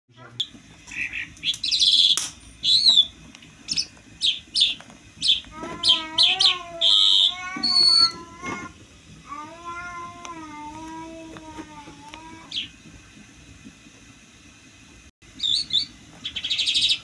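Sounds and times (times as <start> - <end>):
bird chirping: 0.4 - 3.1, 3.7 - 8.2, 15.4 - 17.0
wavering mewing call: 0.9 - 3.1, 3.7 - 8.7, 12.1 - 12.8, 15.4 - 17.0.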